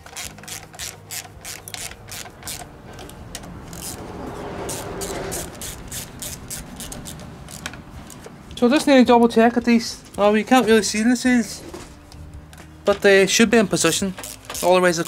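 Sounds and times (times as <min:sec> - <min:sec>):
socket ratchet clicking: 0:00.0 - 0:04.0, 0:04.7 - 0:08.2, 0:13.8 - 0:15.0.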